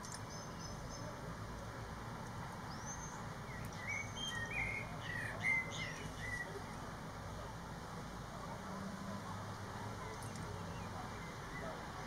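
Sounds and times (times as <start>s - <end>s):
blackbird singing: 0.1s - 1.1s, 2.7s - 6.6s, 10.2s - 11.8s.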